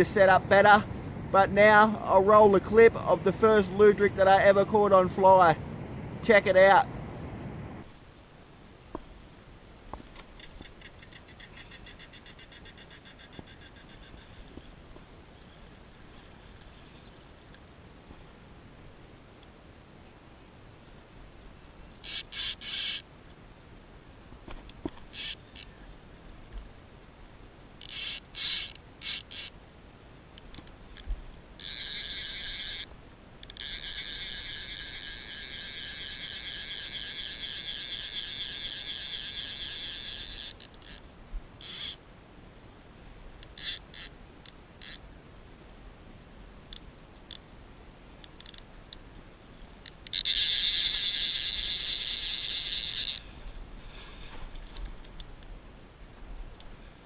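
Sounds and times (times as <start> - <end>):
fishing reel ratchet buzzing: 22.0 - 23.0, 25.1 - 25.7, 27.8 - 29.6, 31.6 - 41.0, 41.6 - 42.0, 43.4 - 44.1, 44.8 - 45.0, 48.3 - 48.6, 49.9 - 53.2
fishing reel single clicks: 22.0 - 23.0, 25.1 - 25.7, 27.8 - 29.6, 30.4 - 41.0, 41.6 - 42.0, 43.4 - 45.0, 48.2 - 48.6, 49.8 - 53.2.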